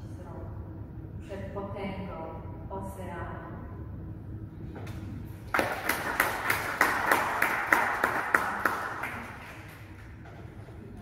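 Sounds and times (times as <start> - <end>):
audience applauding: 5.5 - 10.2
sharp individual claps: 5.5 - 10.2.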